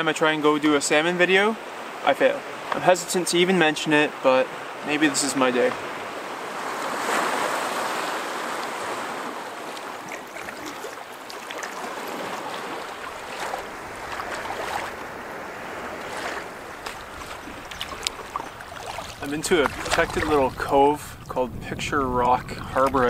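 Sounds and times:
small waves washing against rock: 0:05.5 - 0:21.4
water lapping around a canoe: 0:05.8 - 0:21.4
light splashes and drips: 0:09.5 - 0:15.1, 0:16.0 - 0:21.4.

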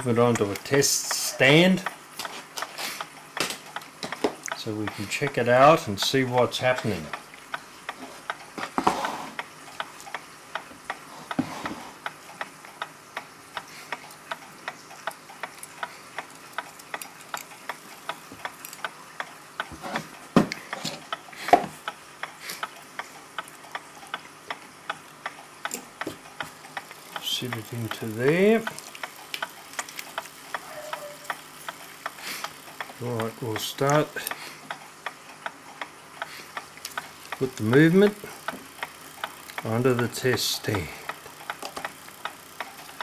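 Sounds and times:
clock ticking: 0:00.0 - 0:08.6, 0:09.4 - 0:11.4, 0:20.6 - 0:43.0.

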